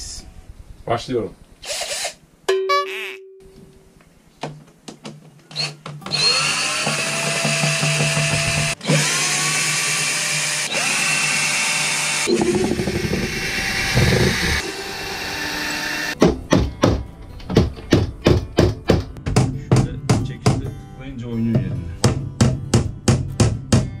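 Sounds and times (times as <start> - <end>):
cordless drill running: 1.6 - 2.2, 5.6 - 16.2.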